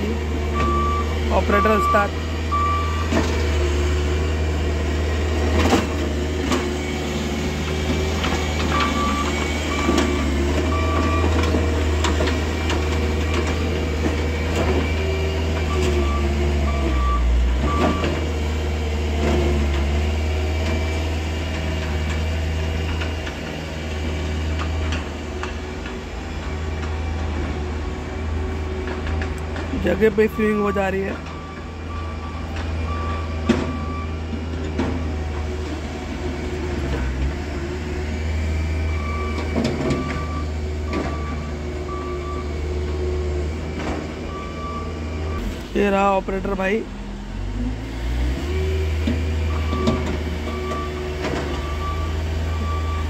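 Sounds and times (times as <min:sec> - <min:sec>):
diesel engine running: 0:00.0 - 0:53.0
reversing alarm beeping: 0:00.5 - 0:03.2, 0:08.2 - 0:18.3, 0:29.8 - 0:34.3, 0:38.7 - 0:45.5, 0:49.4 - 0:53.0.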